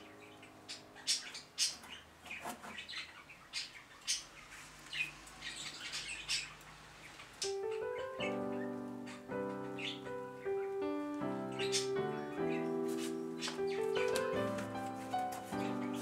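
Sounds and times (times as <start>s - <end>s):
birds chirping: 0.0s - 16.0s.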